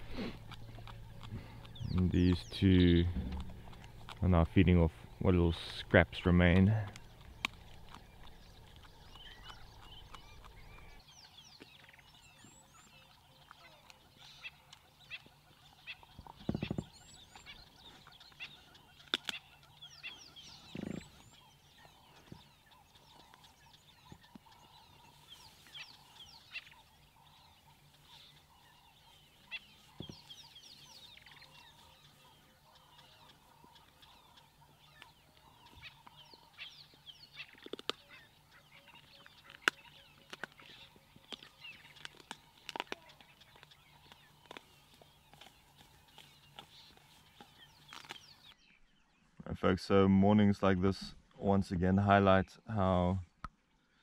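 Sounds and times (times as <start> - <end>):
low thumps: 0.0 - 6.2
bird chirps: 0.0 - 49.5.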